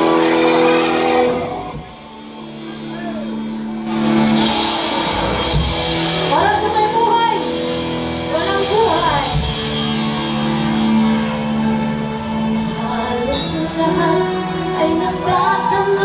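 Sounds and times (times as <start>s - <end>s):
live band with electric guitars: 0.0s - 16.0s
person singing: 12.6s - 16.0s.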